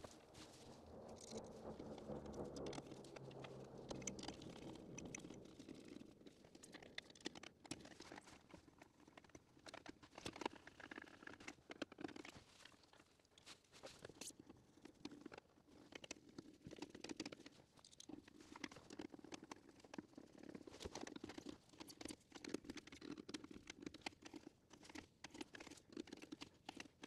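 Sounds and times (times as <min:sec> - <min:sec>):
faint low hum: 0:00.0 - 0:10.2.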